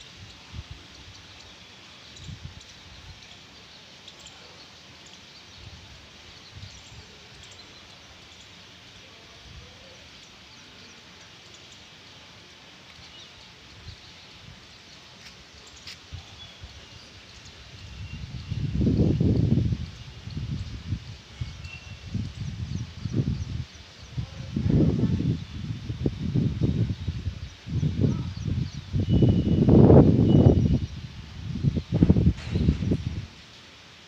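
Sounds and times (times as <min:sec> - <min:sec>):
small birds chirping: 0:00.0 - 0:34.0.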